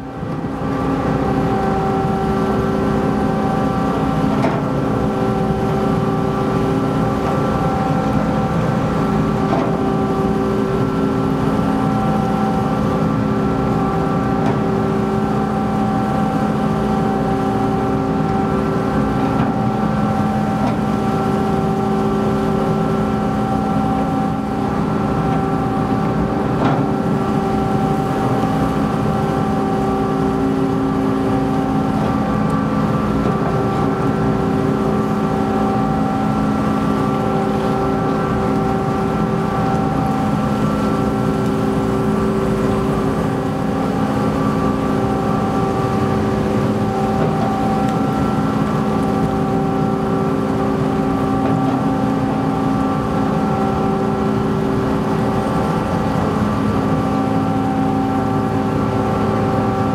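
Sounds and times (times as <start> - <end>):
ferry machinery drone: 0.0 - 59.9.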